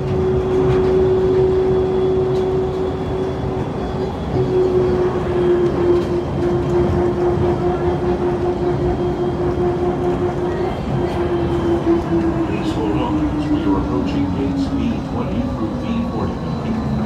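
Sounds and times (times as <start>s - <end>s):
train motor whine: 0.0s - 17.0s
train rolling rumble: 0.0s - 17.0s.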